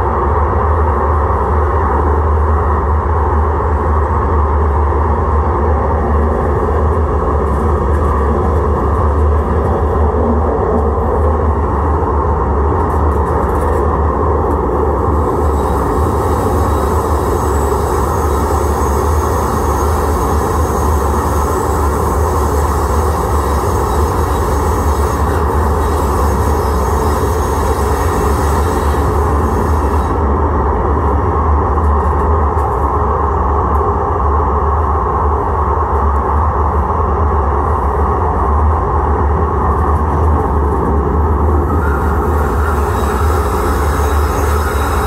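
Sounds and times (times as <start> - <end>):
light-rail car humming: 0.0 - 45.0.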